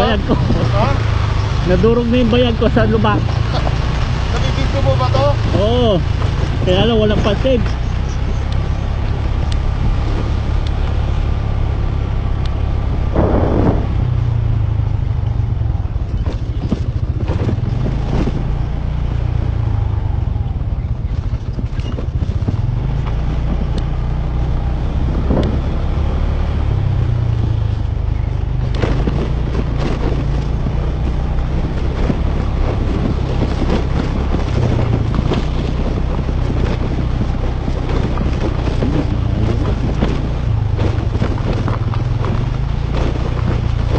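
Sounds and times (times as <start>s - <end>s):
motorcycle engine rumble: 0.0s - 43.9s
knocks and rattles from bumps: 28.4s - 43.9s.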